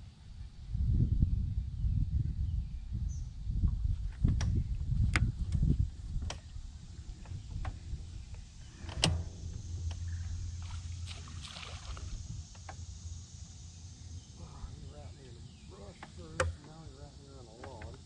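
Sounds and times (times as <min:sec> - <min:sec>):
low rumble: 0:00.8 - 0:15.8
electric motor humming: 0:06.8 - 0:14.9.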